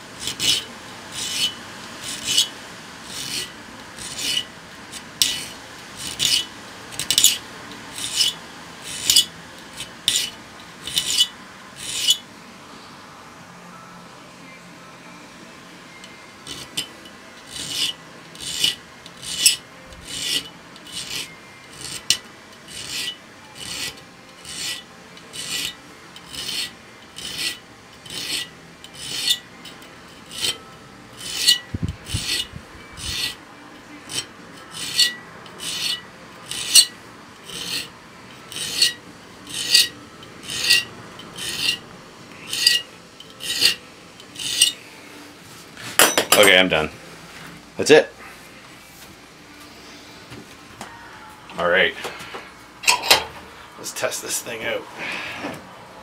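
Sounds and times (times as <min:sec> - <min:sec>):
file rasping across saw teeth: 0:00.2 - 0:12.2, 0:16.4 - 0:33.4, 0:34.0 - 0:41.8, 0:42.4 - 0:44.8.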